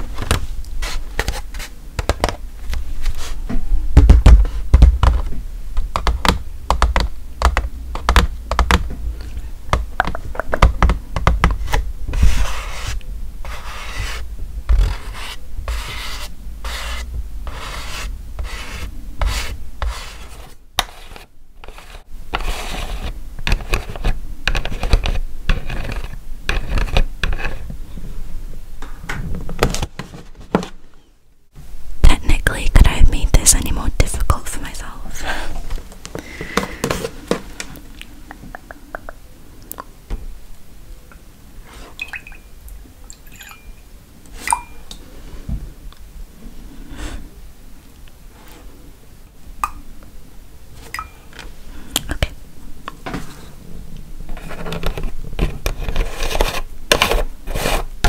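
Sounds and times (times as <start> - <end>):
rasping scratch strokes: 12.2 - 27.6.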